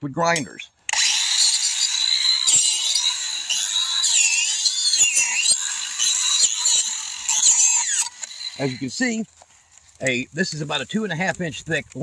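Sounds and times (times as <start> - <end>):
angle grinder cutting wood: 0.8 - 10.9.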